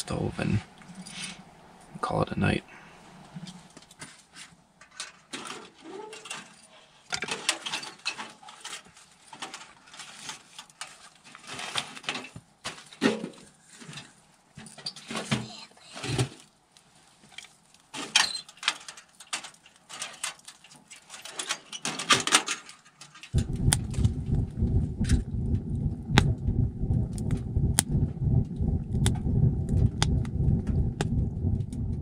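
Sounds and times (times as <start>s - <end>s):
wood crackling and popping: 22.6s - 32.0s
fire rumbling in stove: 23.4s - 32.0s.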